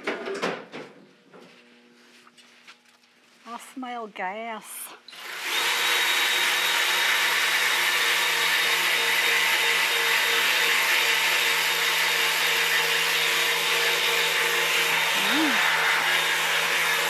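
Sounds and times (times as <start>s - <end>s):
electric motor and fan whirring: 5.1s - 17.0s.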